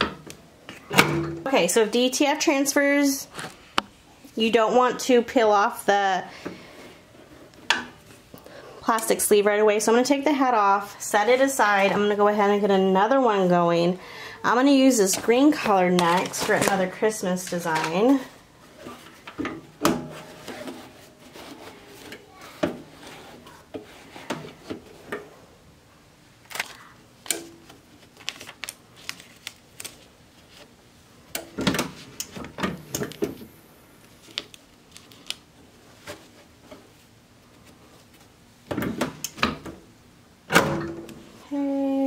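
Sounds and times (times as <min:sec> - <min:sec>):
fabric and film rustling: 0:14.9 - 0:19.4, 0:20.1 - 0:24.9, 0:27.7 - 0:30.8.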